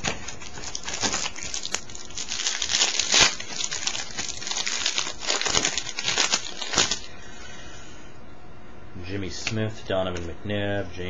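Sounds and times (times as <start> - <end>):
foil wrapper tearing and crinkling: 0.0 - 7.1.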